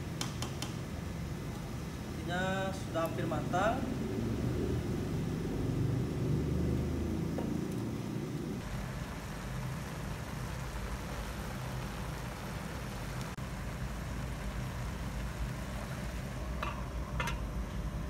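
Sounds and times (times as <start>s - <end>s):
sauce bubbling and sizzling in pan: 0.0s - 18.0s
steady low hum: 0.0s - 18.0s.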